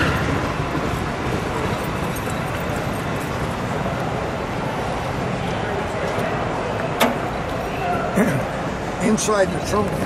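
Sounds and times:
faint crowd murmur: 0:00.0 - 0:10.0.

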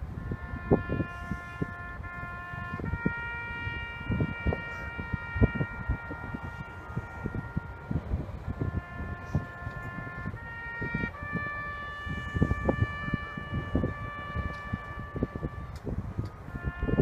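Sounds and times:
brass instruments slow melody: 0:00.0 - 0:17.0
wind gusting on microphone: 0:00.0 - 0:17.0.

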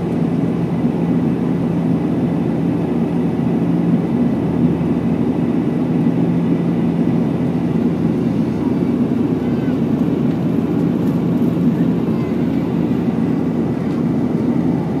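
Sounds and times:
airliner cabin engine drone: 0:00.0 - 0:15.0
rushing air: 0:07.6 - 0:15.0.

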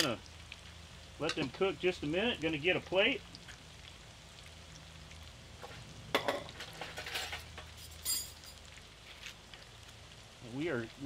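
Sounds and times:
fries sizzling in oil: 0:00.0 - 0:11.0
dishes clinking: 0:06.2 - 0:08.6.

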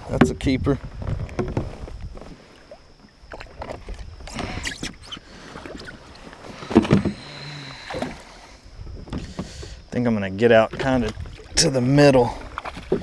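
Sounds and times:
fishing gear knocking in kayak: 0:00.0 - 0:01.7.

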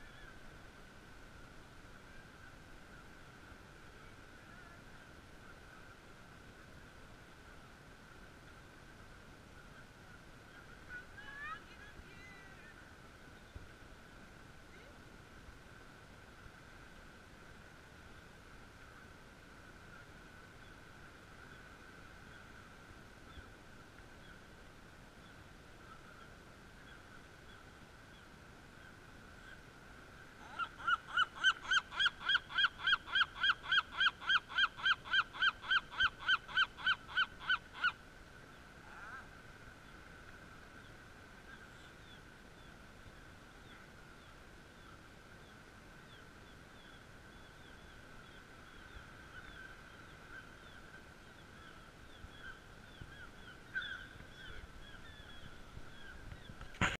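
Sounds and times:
gull calling: 0:30.4 - 0:38.0, 0:38.8 - 0:39.3, 0:51.6 - 0:56.9.

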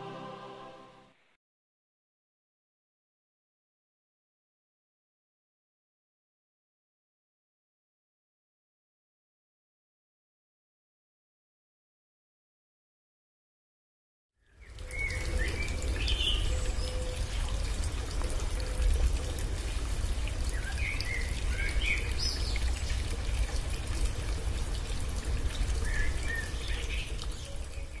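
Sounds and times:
waterfall rushing: 0:00.0 - 0:01.0
small birds chirping: 0:14.5 - 0:19.5.

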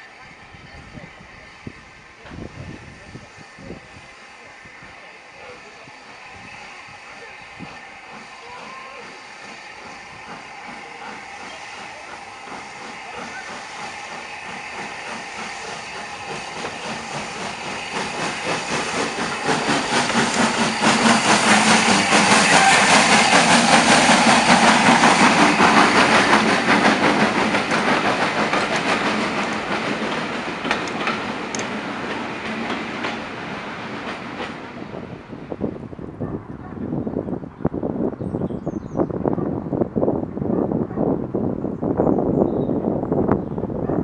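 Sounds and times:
steam train passing: 0:00.0 - 0:44.0
wheels clattering over rail joints: 0:26.0 - 0:33.4.

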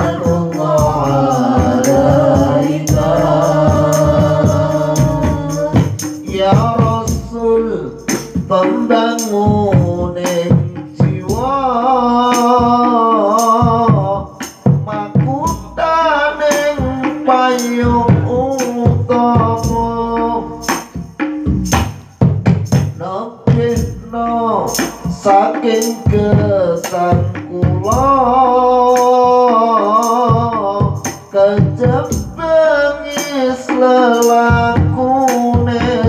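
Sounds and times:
hand drum strikes: 0:00.0 - 0:07.4
man singing into a microphone: 0:00.0 - 0:20.8, 0:23.0 - 0:36.0
jingling percussion: 0:00.0 - 0:36.0.

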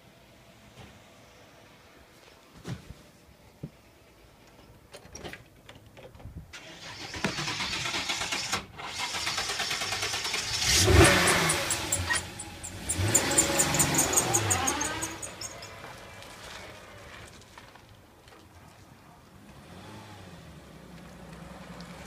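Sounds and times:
car engine running: 0:10.4 - 0:16.0.

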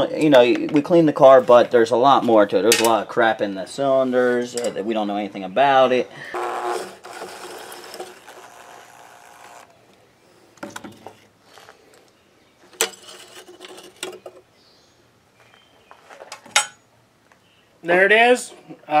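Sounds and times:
cordless drill running: 0:06.3 - 0:09.8.

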